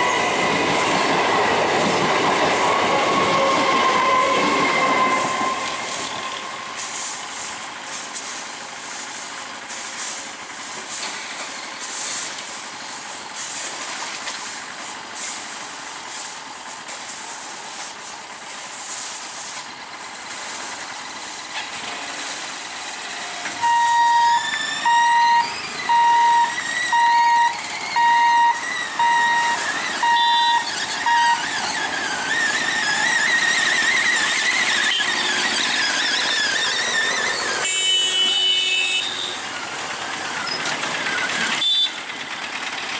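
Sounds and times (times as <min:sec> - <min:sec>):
train running past on tracks: 0:00.0 - 0:42.9
electronic warning beeps: 0:23.6 - 0:31.6
motorbike engines pulling away: 0:24.3 - 0:37.7, 0:39.3 - 0:42.9.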